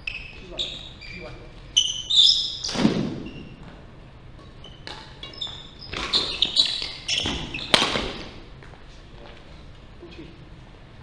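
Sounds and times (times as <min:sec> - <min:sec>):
shoes squeaking on floor: 0:00.0 - 0:03.8, 0:04.5 - 0:08.4
rackets hitting shuttlecock: 0:04.4 - 0:08.4.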